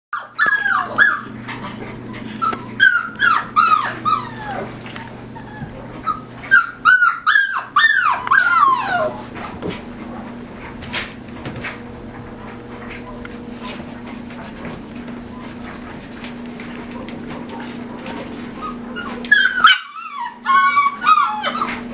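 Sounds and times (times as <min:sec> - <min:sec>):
puppies whining and yipping: 0:00.2 - 0:09.5, 0:14.8 - 0:21.9.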